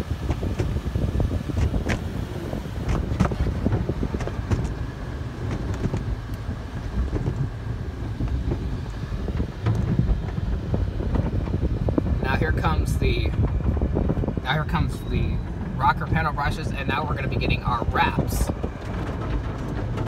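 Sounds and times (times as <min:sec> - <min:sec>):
low rumble of car wash tunnel: 0:00.0 - 0:20.0
cloth strips slapping on car: 0:01.5 - 0:04.8.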